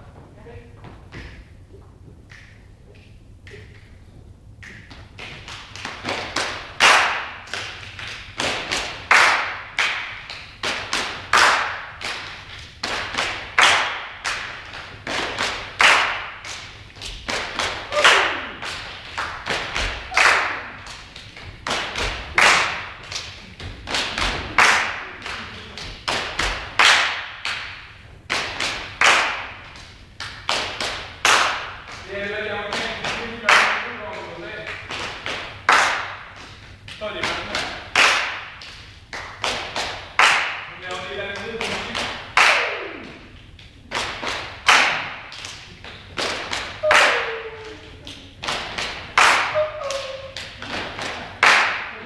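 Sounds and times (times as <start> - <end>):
group clapping hands: 2.2 - 4.0, 4.6 - 52.0
feet stomping: 12.1 - 29.9.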